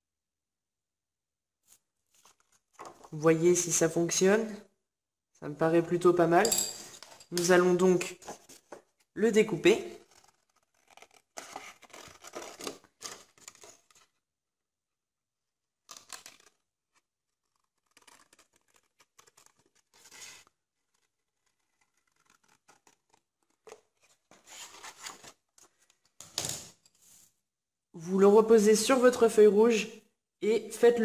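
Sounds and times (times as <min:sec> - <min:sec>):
paper sheet rustling: 0:01.6 - 0:03.2, 0:15.9 - 0:27.4.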